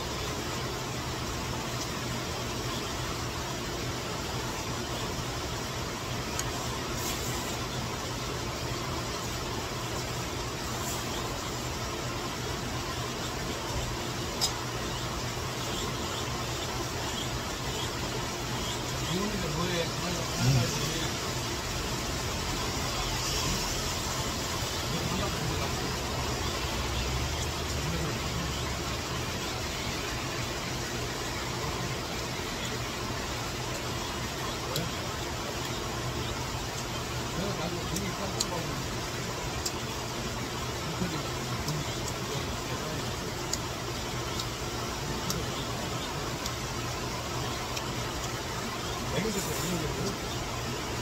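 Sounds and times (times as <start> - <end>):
heavy rain: 18.6 - 51.0.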